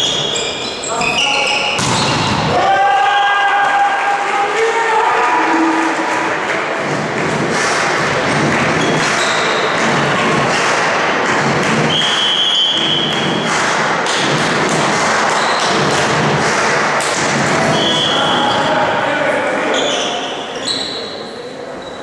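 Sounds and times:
volleyball thuds: 0:01.8 - 0:02.6
loud steady din: 0:02.0 - 0:19.5
high whistle-like tone: 0:11.9 - 0:13.2, 0:17.7 - 0:18.4.

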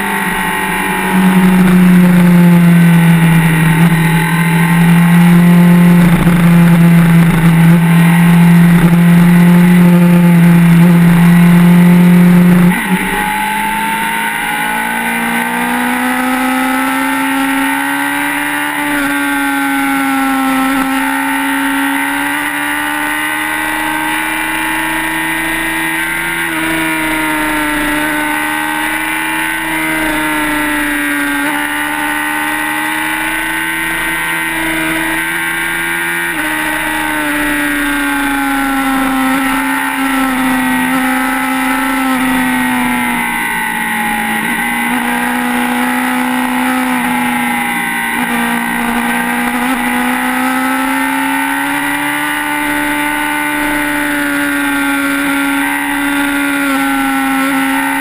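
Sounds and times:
motorcycle engine at high revs: 0:00.0 - 0:58.0.

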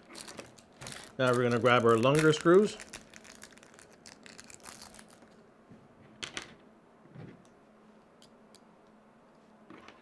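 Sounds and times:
plastic bag rustling: 0:00.0 - 0:05.4.

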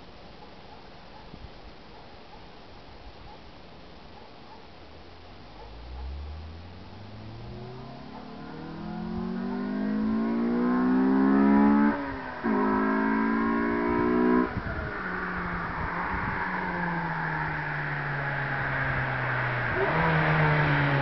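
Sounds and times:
car engine accelerating: 0:05.4 - 0:21.0.

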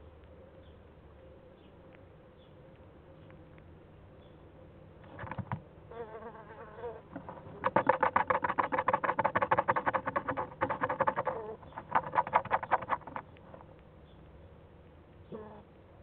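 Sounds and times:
young animal buzzy call: 0:05.9 - 0:07.1, 0:07.7 - 0:13.2, 0:15.3 - 0:15.7.

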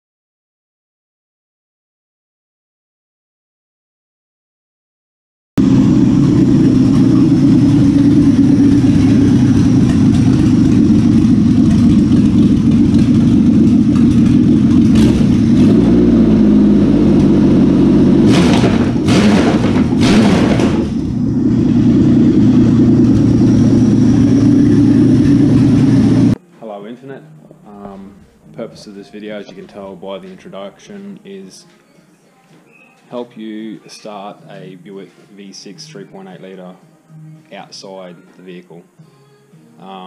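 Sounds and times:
car engine running: 0:05.6 - 0:26.4.

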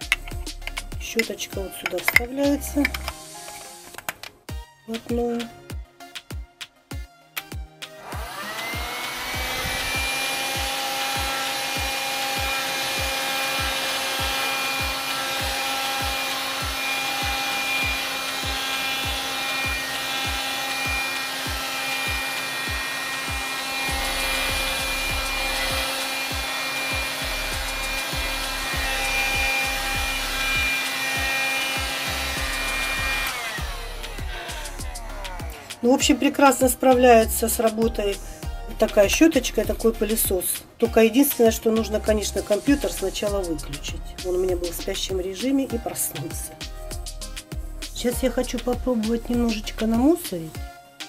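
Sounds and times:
handheld vacuum whining: 0:00.0 - 0:03.9, 0:08.0 - 0:38.1
brush nozzle knocking on keyboard: 0:00.0 - 0:04.3.

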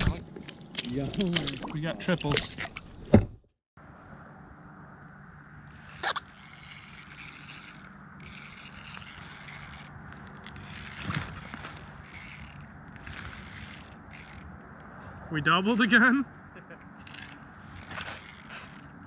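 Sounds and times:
fishing reel gears whirring: 0:05.8 - 0:14.9, 0:17.6 - 0:19.0.

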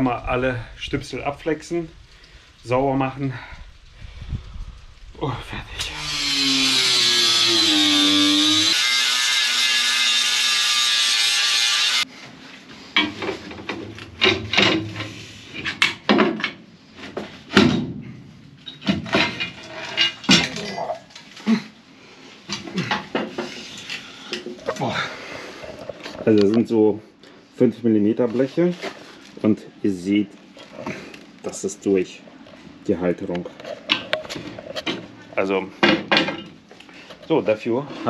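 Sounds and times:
angle grinder grinding steel: 0:05.8 - 0:12.1
knocks and clanks on steel: 0:13.0 - 0:20.7, 0:35.8 - 0:36.6.

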